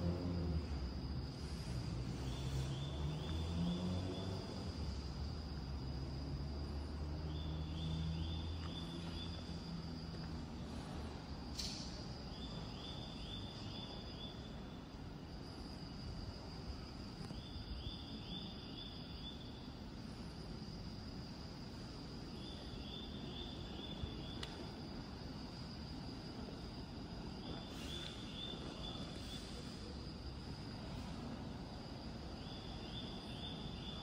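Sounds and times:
steady high whine: 0.0s - 34.0s
single click: 11.5s - 12.0s.

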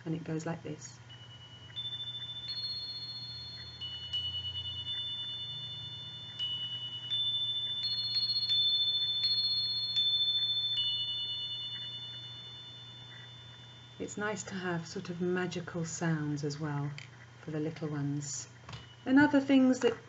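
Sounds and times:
glockenspiel struck with mallet: 1.1s - 15.6s.

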